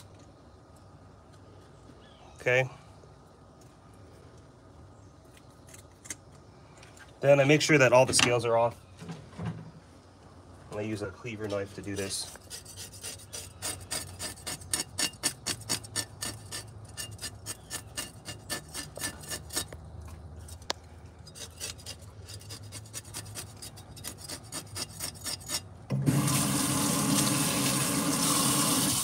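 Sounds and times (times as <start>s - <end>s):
cleaver scraping fish scales: 11.5s - 19.8s, 20.4s - 25.7s.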